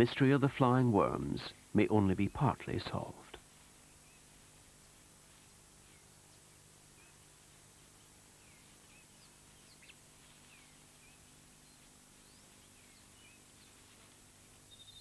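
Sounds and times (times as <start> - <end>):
faint hiss: 0.0 - 15.0
faint bird chirps: 3.7 - 5.1, 5.7 - 15.0.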